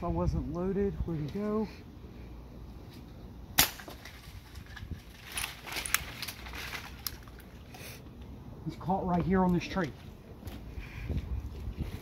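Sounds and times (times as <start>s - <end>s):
rustling in tree leaves: 4.0s - 8.3s.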